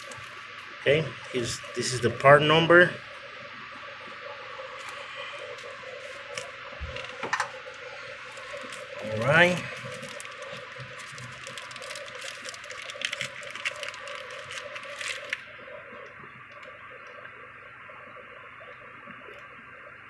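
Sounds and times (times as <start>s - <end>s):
plastic bag crinkling: 8.3s - 15.4s.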